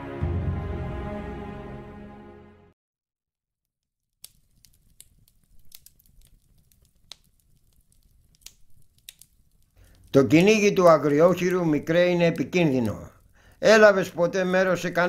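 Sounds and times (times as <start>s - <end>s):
small clicks: 4.2s - 10.2s.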